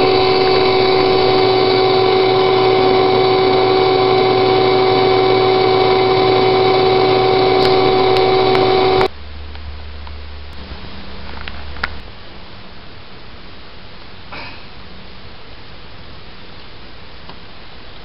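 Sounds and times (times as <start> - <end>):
vacuum whining: 0.0 - 9.1
low hum: 0.0 - 14.3.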